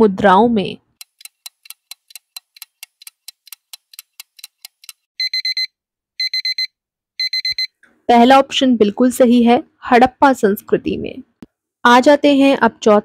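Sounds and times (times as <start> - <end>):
fast clock ticks: 1.0 - 5.0
digital alarm clock beeps: 4.4 - 7.8.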